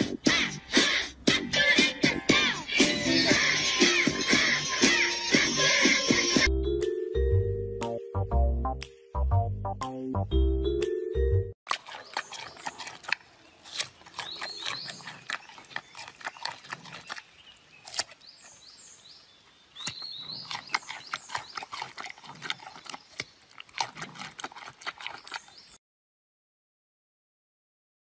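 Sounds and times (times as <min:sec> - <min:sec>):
panda crunching a carrot: 0:11.7 - 0:18.7, 0:19.8 - 0:25.7.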